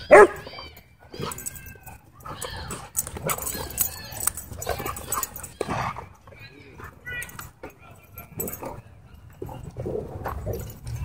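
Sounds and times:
dogs whining and yipping: 0.0s - 6.0s.

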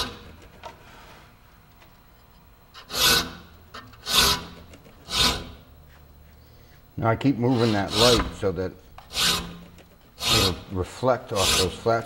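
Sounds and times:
file rasping on saw teeth: 2.8s - 5.6s, 7.4s - 8.3s, 9.1s - 9.6s, 10.2s - 10.7s, 11.3s - 11.9s.

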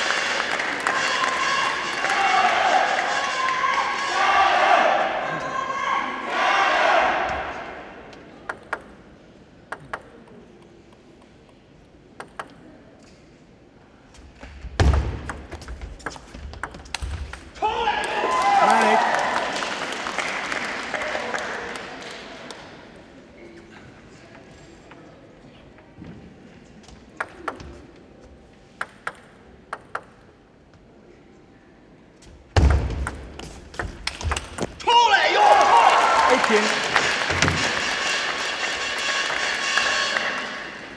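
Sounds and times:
table tennis rally clicks: 8.4s - 13.2s, 14.8s - 17.5s, 28.7s - 30.3s
table tennis ball bouncing: 14.8s - 17.4s, 28.8s - 30.3s.

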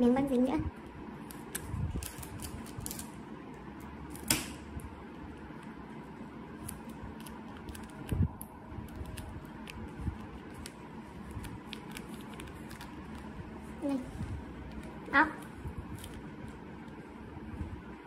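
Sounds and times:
paper and tape crinkling: 6.6s - 13.4s.

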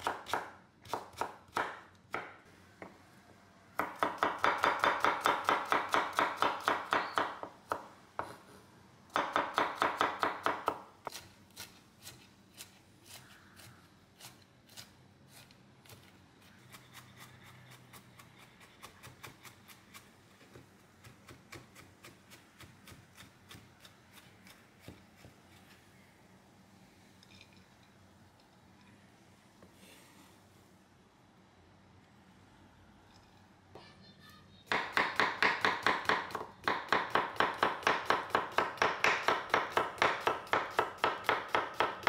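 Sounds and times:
knife chopping on wooden board: 34.7s - 42.0s.

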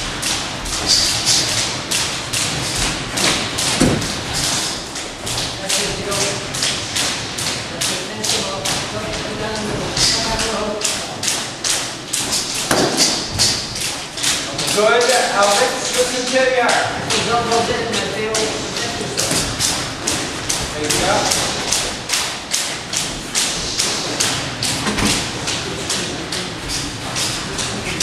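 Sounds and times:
sharp tapping of feet and gloves: 0.0s - 28.0s
heavier thud: 2.8s - 4.3s, 12.6s - 13.7s.

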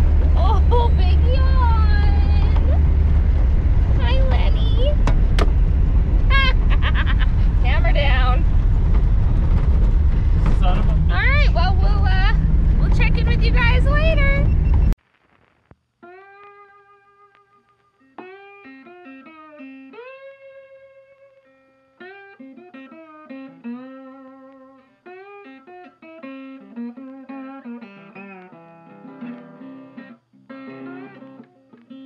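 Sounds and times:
instrumental music with bending notes: 16.0s - 32.0s.

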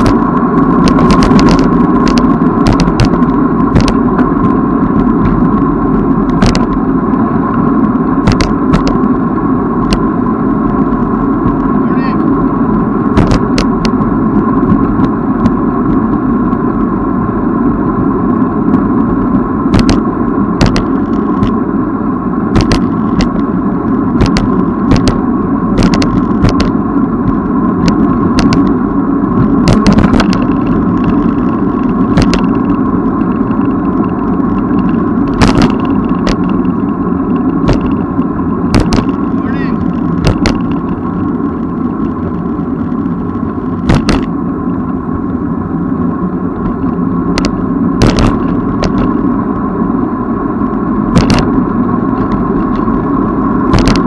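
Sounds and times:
wind and road noise rumble: 0.0s - 54.0s
sharp clicks or knocks: 8.2s - 9.0s, 13.2s - 14.0s, 19.7s - 20.0s, 20.6s - 21.6s, 22.6s - 23.4s, 24.2s - 25.2s, 37.6s - 38.0s, 38.7s - 39.2s, 43.8s - 44.3s, 47.4s - 49.1s, 51.2s - 51.5s, 53.7s - 54.0s.

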